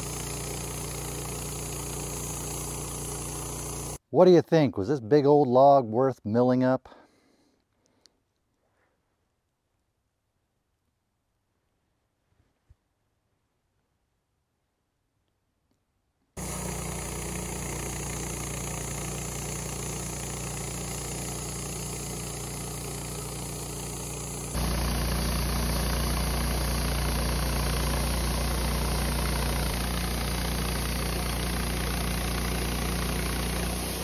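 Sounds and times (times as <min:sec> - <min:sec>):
band sawmill sawing wood: 0:00.0 - 0:04.0, 0:16.4 - 0:34.0.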